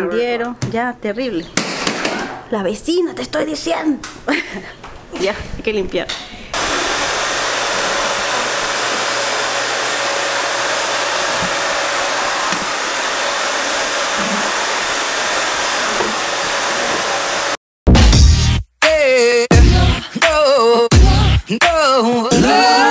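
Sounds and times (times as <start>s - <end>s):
vacuum cleaner running: 6.6s - 17.6s.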